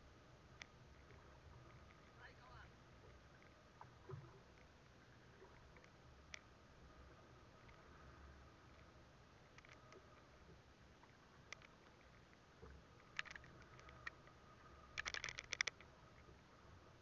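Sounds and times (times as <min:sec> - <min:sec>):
fishing tackle clicking: 0:11.5 - 0:11.8, 0:13.1 - 0:14.3, 0:14.9 - 0:15.9.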